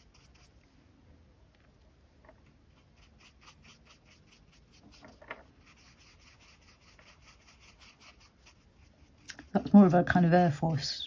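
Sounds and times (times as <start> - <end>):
paintbrush scratching on paper: 0.0 - 0.8, 2.7 - 10.2.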